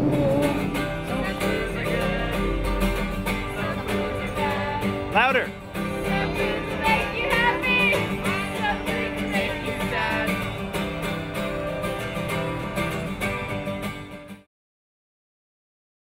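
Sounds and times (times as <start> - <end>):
children and adults singing: 0.0 - 5.0, 5.8 - 10.7
acoustic guitar strumming: 0.0 - 14.5.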